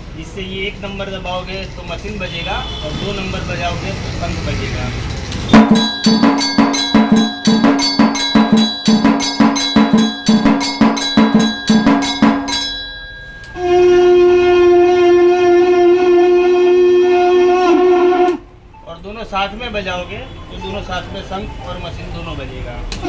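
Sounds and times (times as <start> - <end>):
bell and drum striking: 5.5 - 13.8
long steady conch note: 13.6 - 18.5.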